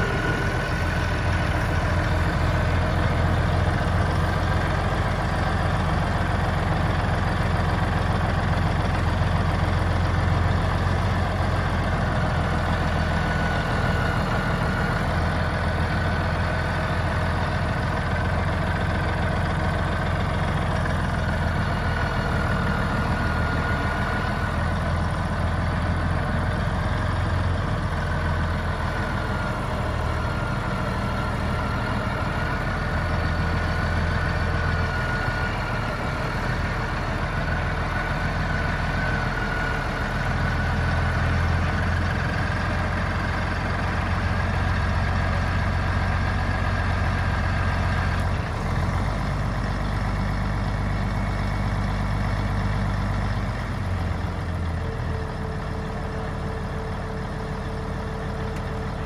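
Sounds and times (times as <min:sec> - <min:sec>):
high whine: 0:00.0 - 0:02.8
tractor diesel engine running: 0:00.0 - 0:59.0.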